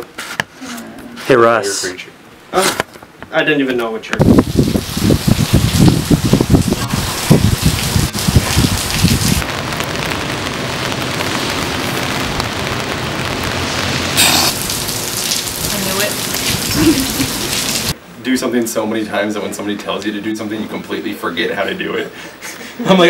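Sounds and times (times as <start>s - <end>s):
rain on wet pavement: 4.2s - 18.0s.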